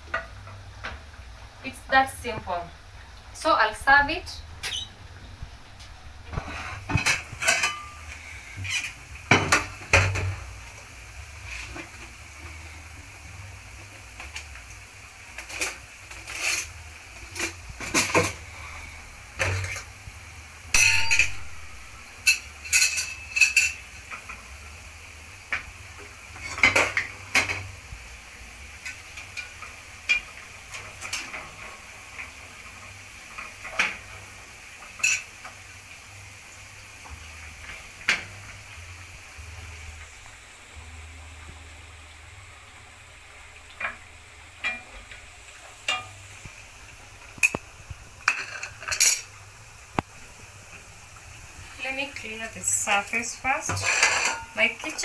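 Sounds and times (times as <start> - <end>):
crockery and utensils clinking: 6.8 - 8.1, 20.8 - 21.4, 22.2 - 23.8, 35.0 - 35.3, 48.2 - 49.3, 53.6 - 55.0.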